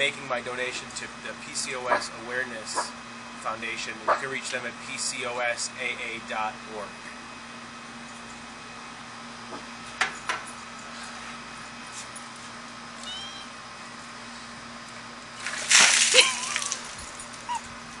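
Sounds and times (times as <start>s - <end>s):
water splash: 15.4s - 17.0s.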